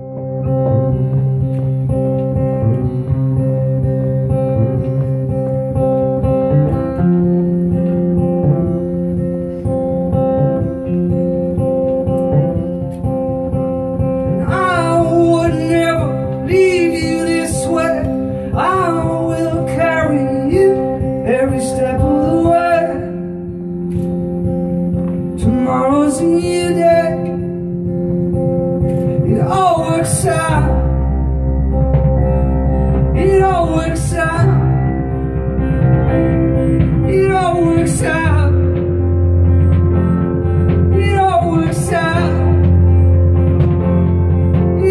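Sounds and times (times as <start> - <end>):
keyboard: 0.0 - 44.9
live band playing: 0.0 - 44.9
strummed acoustic guitar: 0.0 - 44.9
man singing: 14.3 - 23.4, 25.4 - 27.7, 29.2 - 31.0, 33.1 - 35.0, 36.8 - 38.9, 40.6 - 43.0, 44.6 - 44.9.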